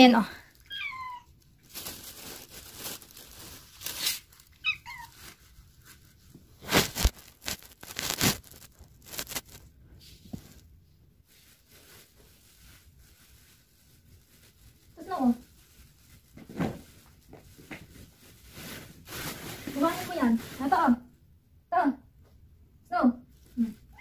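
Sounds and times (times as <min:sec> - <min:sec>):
plastic bags rustling: 0:00.0 - 0:21.0
cat meowing: 0:00.6 - 0:01.4, 0:04.5 - 0:05.2.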